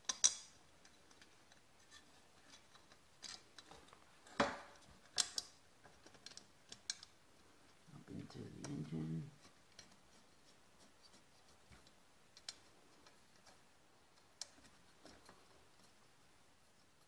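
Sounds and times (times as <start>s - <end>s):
small metal clicks and taps: 0.0s - 7.2s, 11.7s - 16.0s.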